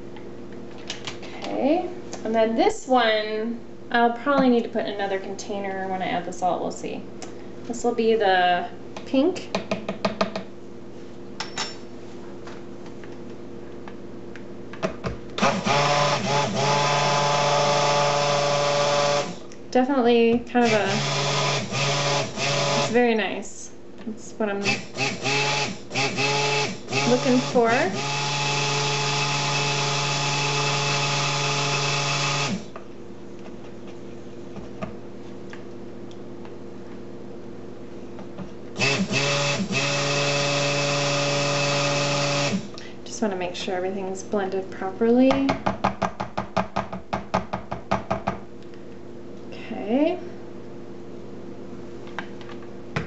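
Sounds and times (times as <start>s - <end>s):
stick blender motor hum: 15.4s - 19.5s, 20.6s - 23.0s, 24.6s - 32.8s, 38.8s - 42.7s.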